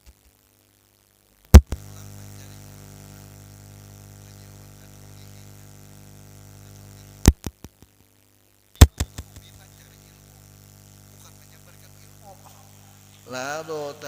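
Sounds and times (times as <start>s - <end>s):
electrical hum: 0.0s - 14.0s
loud pops: 1.5s - 1.9s, 7.2s - 7.9s, 8.8s - 9.7s.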